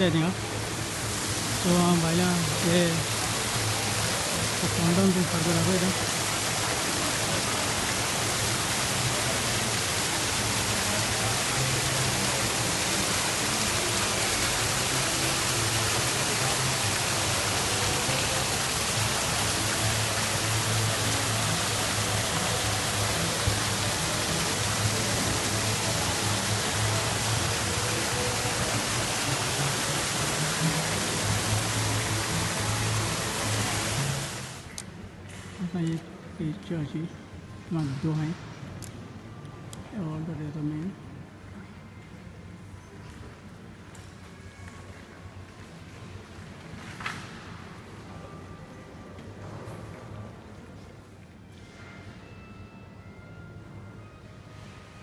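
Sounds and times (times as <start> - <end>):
fountain water splashing into basin: 0.0 - 34.9.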